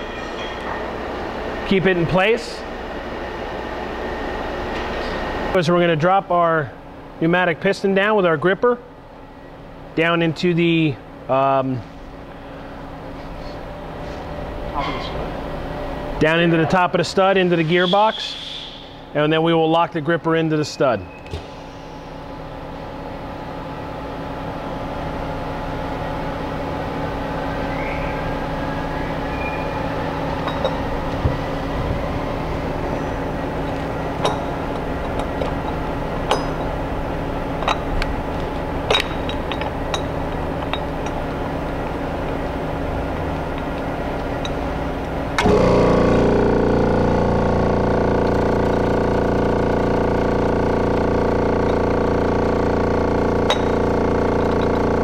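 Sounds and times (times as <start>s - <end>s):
loud multi-tone hum: 0.0s - 55.0s
steady machine hum: 0.0s - 55.0s
sharp metallic clicks and knocks: 33.6s - 36.8s, 37.6s - 42.4s, 53.4s - 54.9s.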